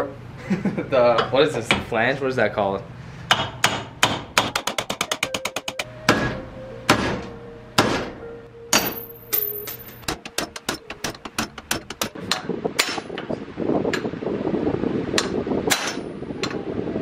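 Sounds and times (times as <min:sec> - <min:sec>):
hammer striking metal studs: 0:03.3 - 0:13.1.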